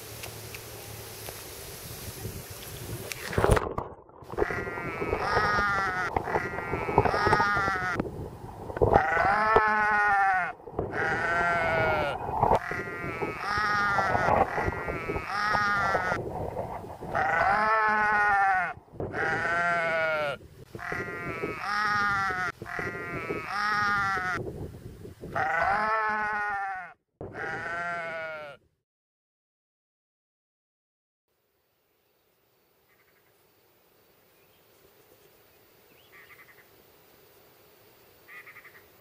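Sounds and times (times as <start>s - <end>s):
sheep bleating: 4.3s - 8.0s, 8.9s - 16.2s, 17.1s - 24.4s, 25.3s - 28.6s, 38.3s - 38.8s.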